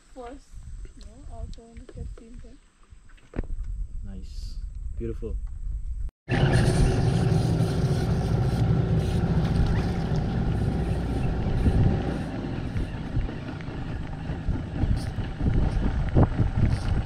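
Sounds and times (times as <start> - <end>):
boat motor humming: 6.3 - 17.0.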